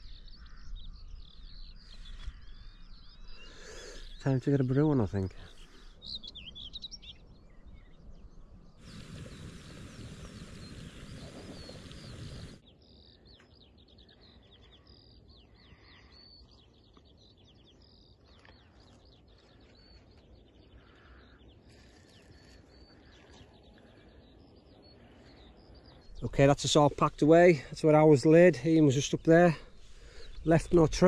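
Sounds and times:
small birds chirping: 0.0 - 31.0
wind rushing on microphone: 7.5 - 12.6.

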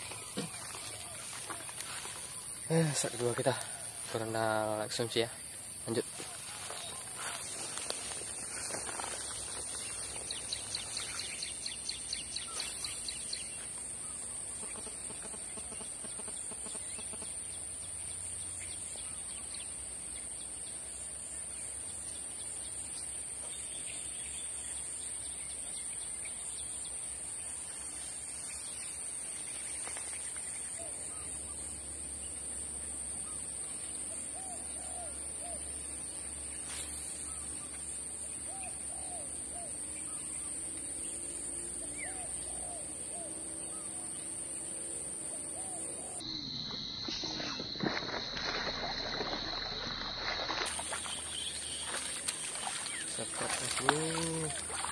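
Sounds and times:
bird calls: 0.0 - 5.3, 45.3 - 54.9.

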